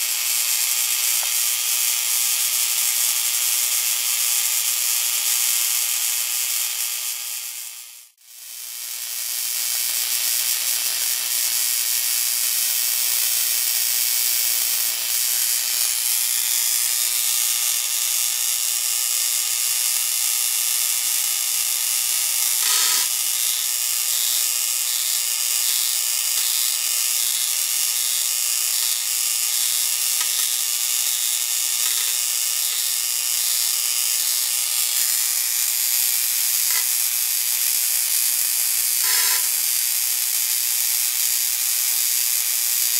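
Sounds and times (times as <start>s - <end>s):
electrical discharge hissing: 22.6s - 23.1s.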